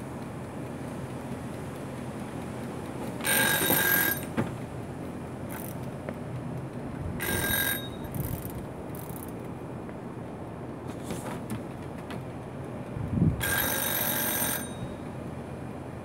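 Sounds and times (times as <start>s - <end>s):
food timer bell ringing: 3.2s - 4.3s, 7.2s - 8.5s, 13.4s - 15.2s.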